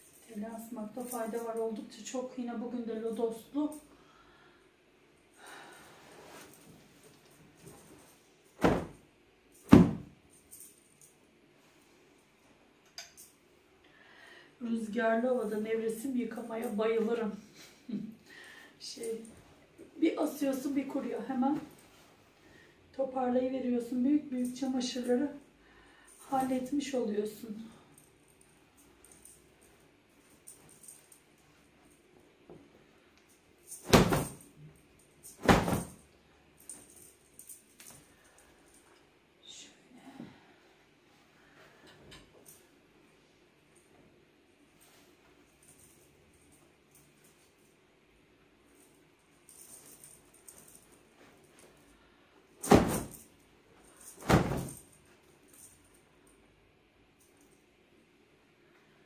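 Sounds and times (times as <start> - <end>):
soft fabric rustles: 0.0 - 4.0, 5.5 - 13.7, 14.6 - 56.5
cloth rustling: 5.9 - 12.5, 28.2 - 39.1, 48.8 - 55.8
duvet cover flapping snap: 8.6 - 9.0, 33.8 - 34.4, 35.4 - 36.0, 52.6 - 53.2, 54.2 - 54.8.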